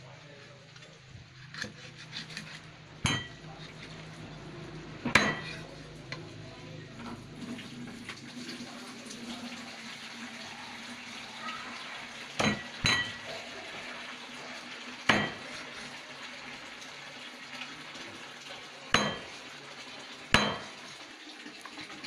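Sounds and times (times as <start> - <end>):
knife chopping on wooden board: 15.1 - 15.5, 20.4 - 20.7.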